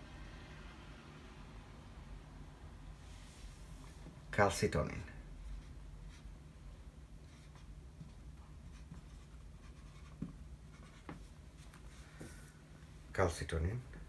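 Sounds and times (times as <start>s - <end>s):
marker writing on whiteboard: 5.4s - 6.4s, 7.2s - 12.3s.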